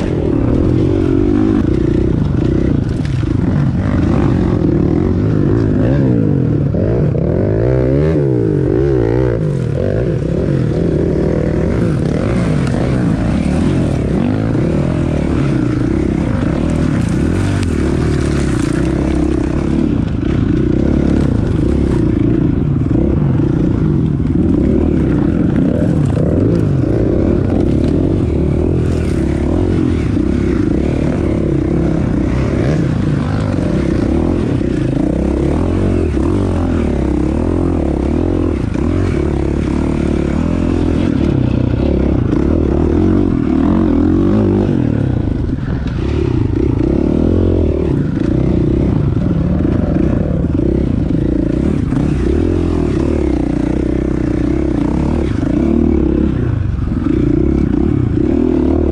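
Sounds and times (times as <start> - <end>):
dirt bike engine revving: 0.0 - 58.9
branches scraping against bike: 10.6 - 22.6.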